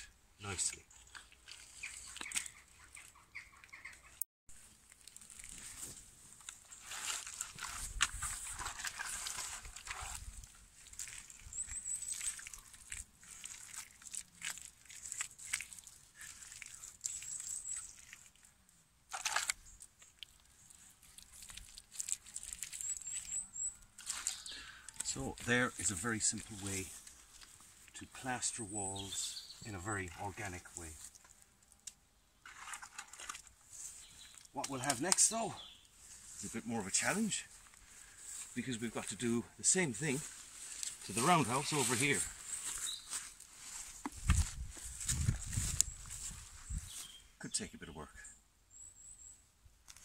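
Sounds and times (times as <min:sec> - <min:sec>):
wet clay squelching: 0:00.4 - 0:03.9, 0:04.6 - 0:46.4
high bird calls: 0:01.5 - 0:04.2, 0:22.6 - 0:26.0
wet clay slapping and squelching: 0:09.0 - 0:18.5, 0:19.1 - 0:23.4, 0:24.0 - 0:28.0.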